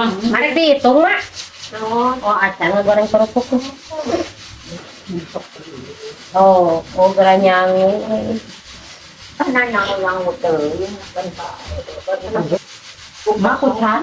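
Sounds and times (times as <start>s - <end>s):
women's voices: 0.0s - 4.3s, 6.3s - 8.5s, 9.4s - 12.6s, 13.3s - 14.0s.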